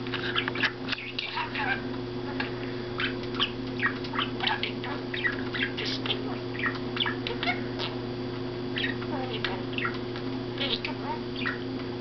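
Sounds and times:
steady low hum: 0.0s - 12.0s
budgerigar chattering: 0.2s - 8.0s, 8.7s - 10.0s, 10.6s - 11.6s.

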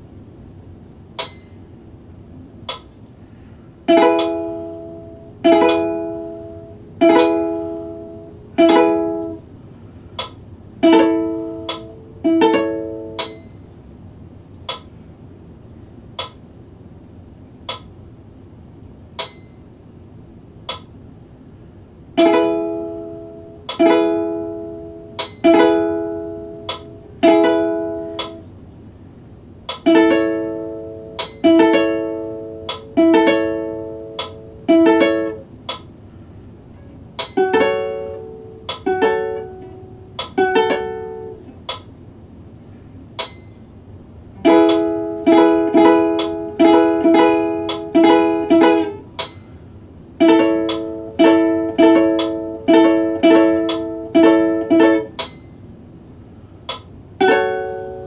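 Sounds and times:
faint metronome ticks: 2.7s - 2.9s, 3.9s - 4.5s, 10.2s - 10.4s, 11.0s - 13.3s, 16.2s - 16.4s, 17.7s - 17.9s, 20.7s - 20.9s, 23.7s - 23.9s, 26.6s - 27.0s, 28.1s - 28.4s, 32.6s - 33.0s, 34.1s - 34.4s, 38.6s - 39.0s, 41.7s - 41.9s, 44.6s - 45.0s, 46.1s - 46.5s, 47.6s - 48.0s, 50.6s - 51.0s, 52.1s - 52.4s, 53.6s - 54.0s, 56.7s - 56.9s
ukulele strumming: 3.9s - 9.4s, 10.2s - 13.6s, 22.2s - 28.4s, 29.7s - 35.8s, 36.8s - 41.8s, 44.3s - 55.8s, 56.7s - 58.0s.

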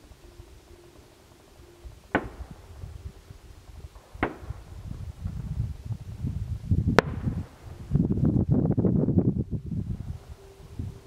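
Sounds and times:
distant fireworks bangs: 2.1s - 3.1s, 3.7s - 5.6s, 6.9s - 7.9s.

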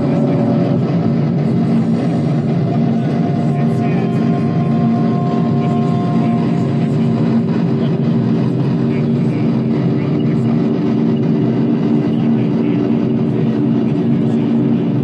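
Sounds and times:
high held tones: 0.0s - 7.5s
low humming drone: 0.0s - 15.0s
noise wash: 0.0s - 15.0s.

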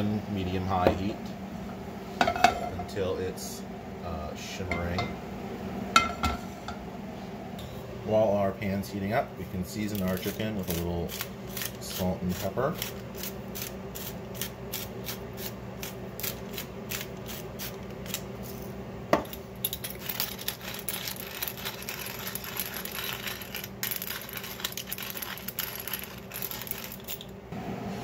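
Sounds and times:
spice mill grinding: 9.8s - 18.3s, 19.6s - 27.3s.

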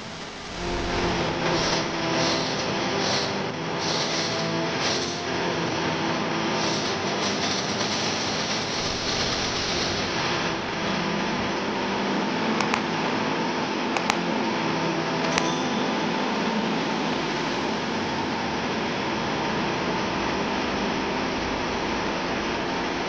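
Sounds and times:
compressed air rushing: 0.0s - 12.2s.

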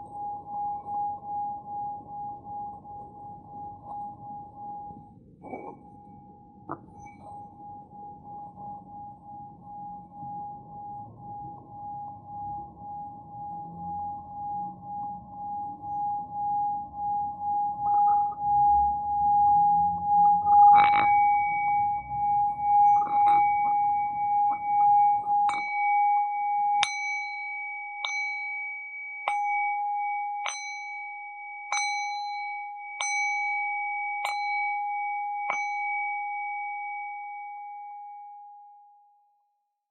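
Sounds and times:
bell-like instrument ringing: 13.7s - 38.6s
bell-like instrument strikes: 22.9s - 36.4s.

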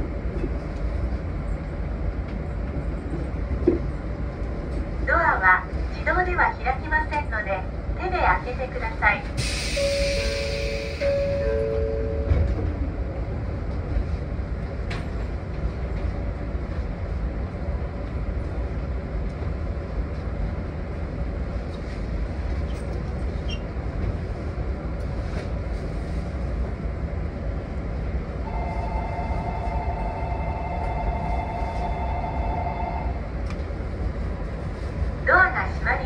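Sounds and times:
train machinery humming: 0.0s - 36.0s.

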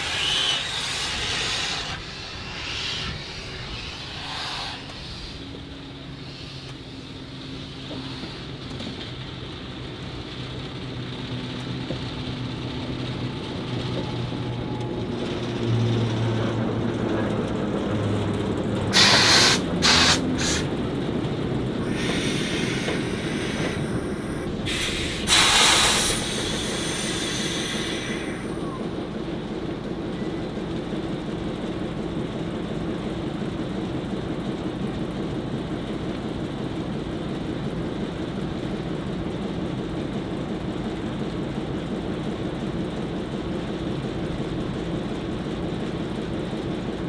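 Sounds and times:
loud blasts of escaping steam: 0.0s - 5.5s, 18.9s - 20.7s, 21.8s - 28.6s
steam hissing: 0.0s - 6.8s, 18.9s - 20.7s, 21.8s - 28.7s.

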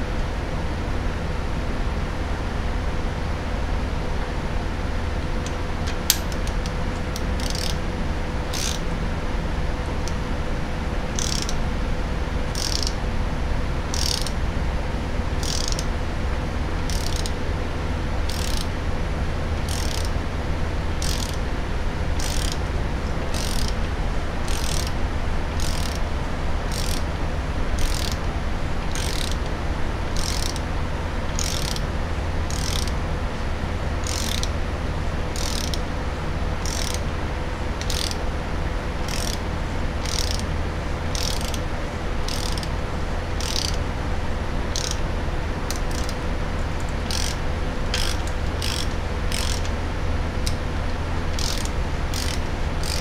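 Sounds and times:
steady low hum: 0.0s - 53.0s
socket ratchet clicking: 5.4s - 7.8s, 8.5s - 8.9s, 11.2s - 11.6s, 12.5s - 13.0s, 13.9s - 14.4s, 15.4s - 15.9s, 16.8s - 17.4s, 18.3s - 18.7s, 19.6s - 20.2s, 21.0s - 21.4s, 22.2s - 22.6s, 23.3s - 23.8s, 24.4s - 25.0s, 25.6s - 26.0s, 26.7s - 27.1s, 27.8s - 28.2s, 28.9s - 29.5s, 30.2s - 30.7s, 31.3s - 31.9s, 32.5s - 33.0s, 34.0s - 34.6s, 35.3s - 35.8s, 36.6s - 37.0s, 37.8s - 38.2s, 39.0s - 39.4s, 40.0s - 40.5s, 41.1s - 41.6s, 42.3s - 42.7s, 43.3s - 43.8s, 44.7s - 45.0s, 45.7s - 46.2s, 46.8s - 49.8s, 51.3s - 53.0s.

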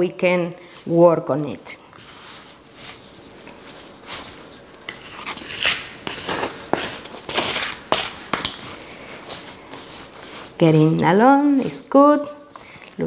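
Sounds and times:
plastic gloves rustling: 0.6s - 13.0s
dough squishing: 2.0s - 13.0s
plastic scraper scraping dough: 4.9s - 10.8s.

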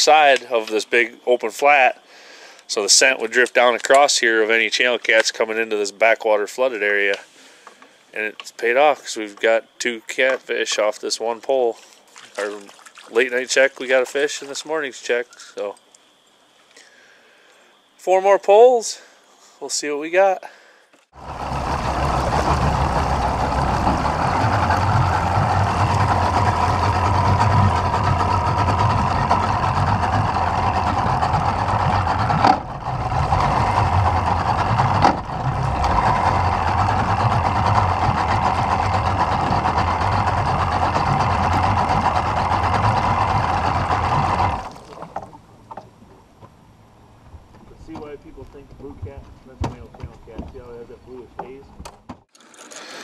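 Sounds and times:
outboard motor running: 12.0s - 14.3s, 21.1s - 51.6s.

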